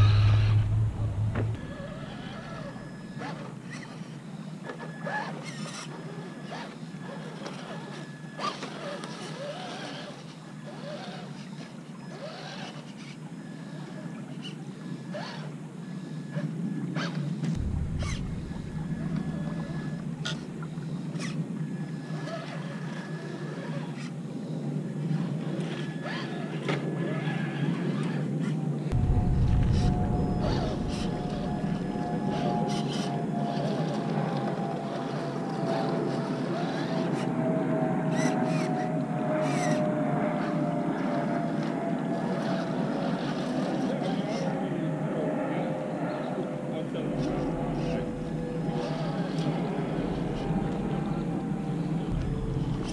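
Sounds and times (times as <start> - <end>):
electric motor whining: 0.0 - 4.1, 17.5 - 21.4, 28.9 - 35.5
toy truck electric motor whining: 1.7 - 15.5, 32.7 - 37.3, 38.1 - 38.9.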